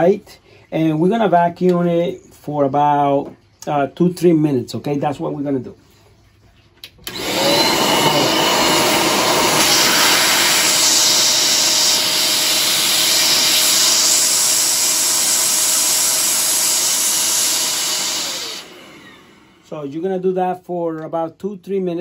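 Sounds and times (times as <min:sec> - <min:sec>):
vacuum cleaner running with whine: 0:07.1 - 0:19.8.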